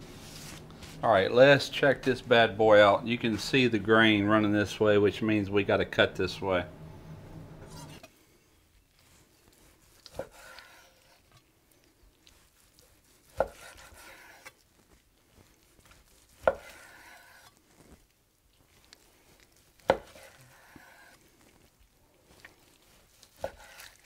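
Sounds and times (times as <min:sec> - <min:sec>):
knife slicing through meat: 0:09.0 - 0:11.4, 0:12.2 - 0:14.9, 0:15.6 - 0:17.8, 0:19.6 - 0:21.4, 0:22.6 - 0:24.0.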